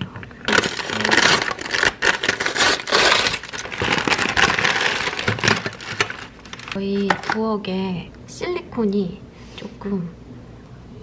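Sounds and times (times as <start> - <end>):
paper mailer crinkling and tearing: 0.5 - 7.1.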